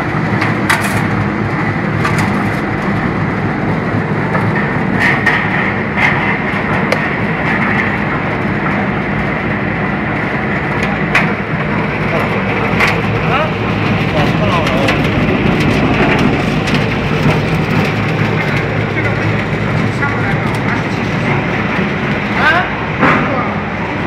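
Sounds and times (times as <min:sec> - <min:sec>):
machine droning: 0:00.0 - 0:24.0.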